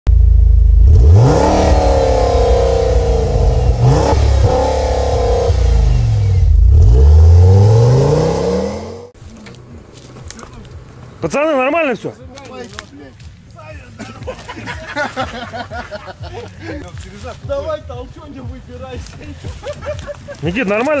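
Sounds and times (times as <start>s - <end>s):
car engine revving: 0.1s - 11.2s.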